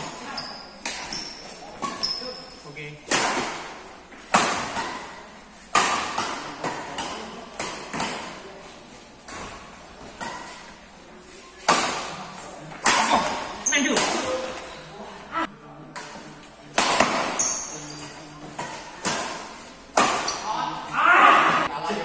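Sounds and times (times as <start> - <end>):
rackets hitting shuttlecock: 0.8 - 8.4, 11.6 - 12.2, 12.8 - 14.4, 15.9 - 20.5.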